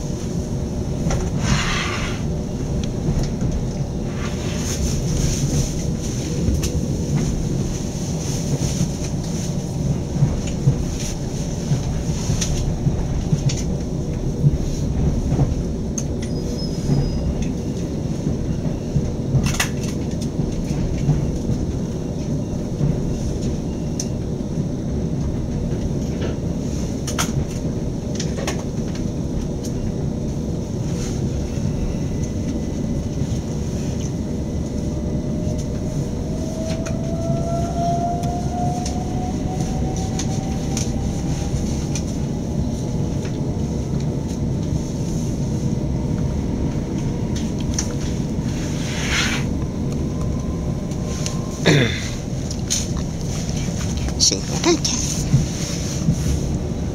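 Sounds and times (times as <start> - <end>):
electric train rumble: 0.0 - 56.9.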